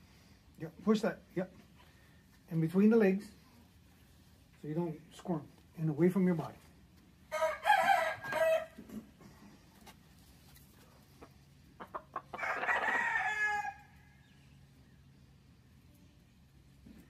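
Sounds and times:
rooster crowing: 7.3s - 8.8s, 12.3s - 14.2s.

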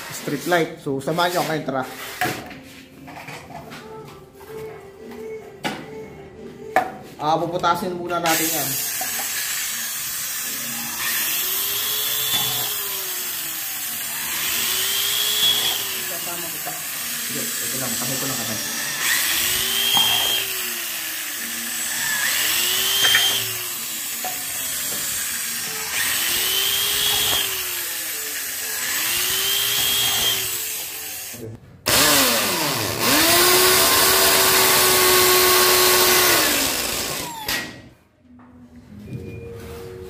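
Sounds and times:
electric drill boring plastic: 8.3s - 37.8s.

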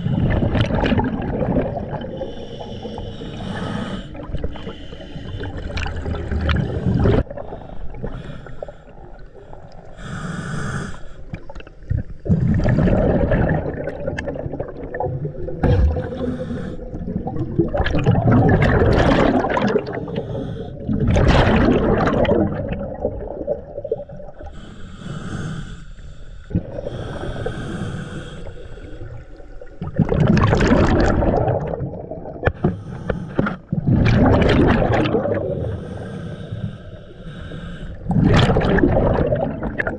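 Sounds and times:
bubbling exhaled air: 0.0s - 25.8s, 26.4s - 39.9s
hissing regulator inhales: 2.2s - 11.3s, 15.9s - 17.0s, 20.0s - 20.8s, 24.4s - 29.4s, 32.6s - 33.6s, 35.6s - 38.1s.

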